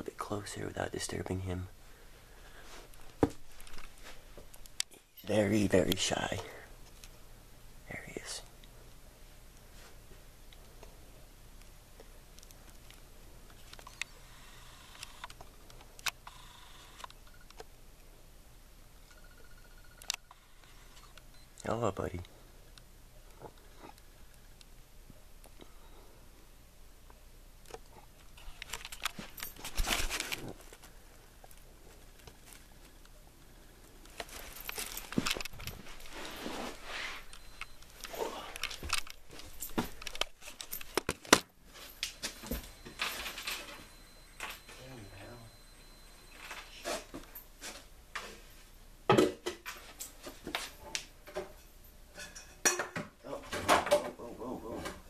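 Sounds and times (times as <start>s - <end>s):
rustling: 27.8s - 44.7s.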